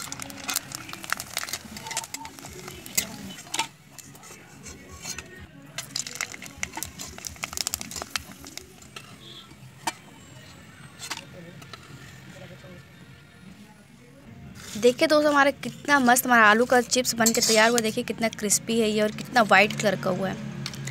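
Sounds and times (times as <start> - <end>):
chips frying in oil: 0.0 - 4.2, 5.7 - 9.5
metal spatula scraping wok: 0.0 - 9.4, 14.5 - 18.2.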